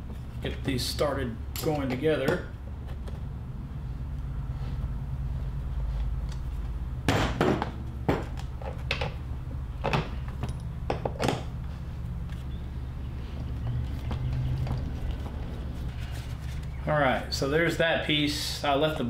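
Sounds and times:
steady low hum: 0.0 - 19.0
tools knocking and clattering: 7.1 - 9.2, 9.8 - 11.5.

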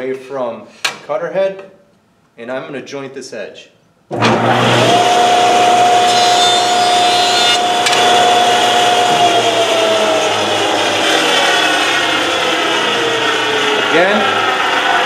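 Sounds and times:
jointer whine: 4.2 - 15.0.

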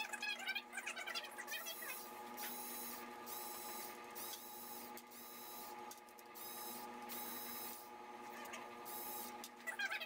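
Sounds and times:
power driver whining: 1.7 - 9.6.

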